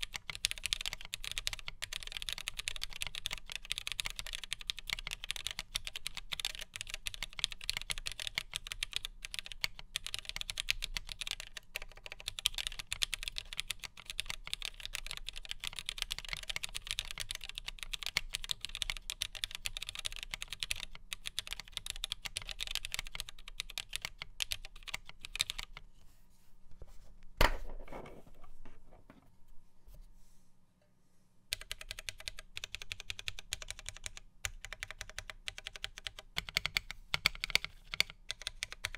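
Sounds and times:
fast mechanical keyboard typing: 0.0s - 25.8s, 31.5s - 38.9s.

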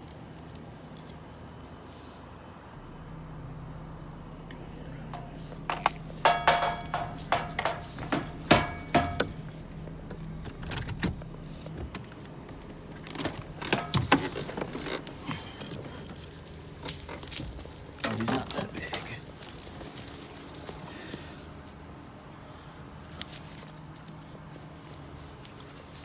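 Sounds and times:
idling car hum: 0.0s - 26.0s
metallic pole clicking and jangling: 5.1s - 9.6s.

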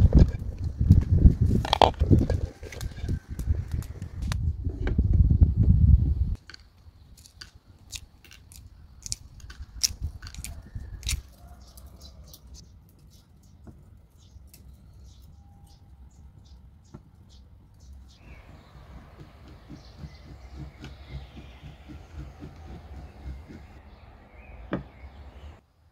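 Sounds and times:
eggshell crackling: 1.5s - 4.2s, 6.4s - 12.6s.

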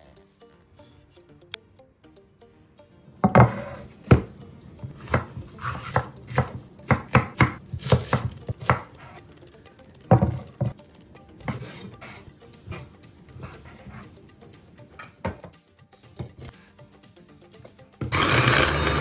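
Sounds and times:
knife chopping on cutting board: 5.0s - 9.0s.

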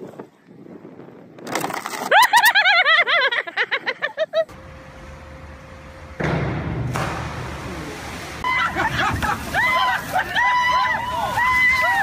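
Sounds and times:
large indoor room hum: 4.4s - 12.0s
noisy clatter: 4.5s - 8.3s
sudden loud noise: 4.6s - 9.2s.

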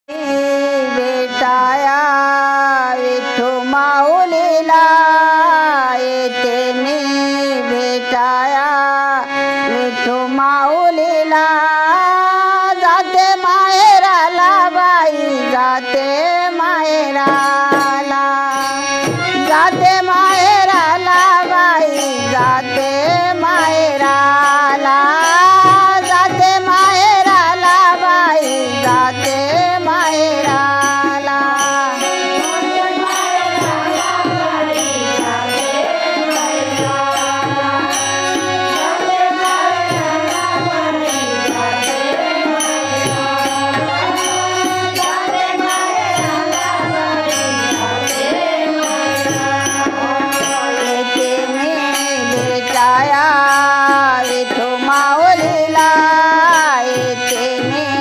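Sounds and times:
harmonium melody: 0.0s - 58.0s
tabla drumming: 16.7s - 58.0s.

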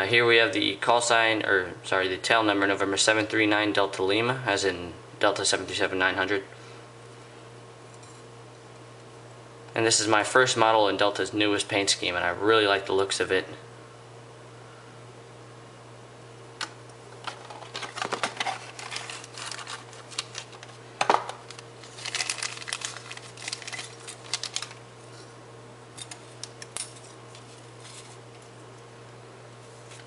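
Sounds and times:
plastic packaging crinkling: 17.2s - 24.8s, 26.0s - 28.4s.

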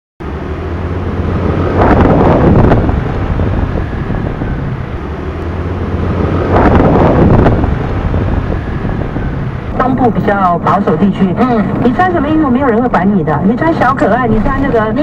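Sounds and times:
engine and road rumble: 0.2s - 15.0s
wind rushing over microphone: 0.2s - 15.0s.

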